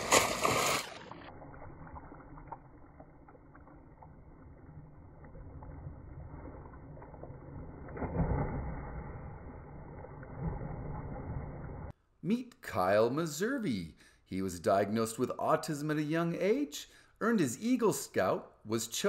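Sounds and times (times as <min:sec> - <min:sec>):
swimmer splashing in a pool: 0:00.0 - 0:09.3.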